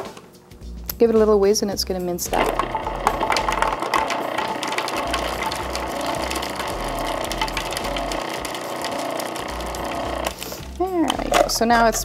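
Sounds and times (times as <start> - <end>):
food processor motor running: 2.3 - 10.4.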